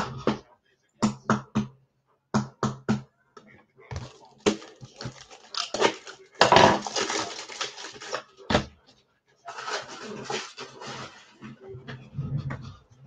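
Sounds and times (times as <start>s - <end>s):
foil wrappers tearing and crinkling: 4.0s - 8.4s, 9.5s - 11.3s.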